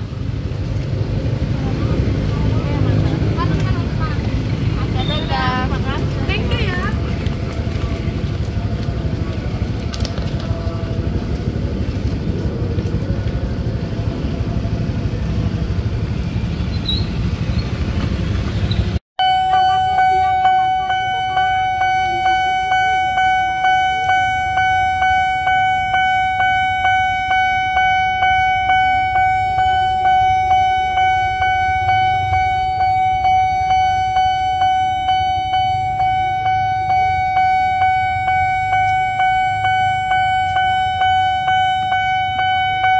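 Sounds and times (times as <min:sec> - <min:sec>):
road traffic noise: 0:00.0 - 0:42.9
level crossing alarm bell: 0:19.2 - 0:42.9.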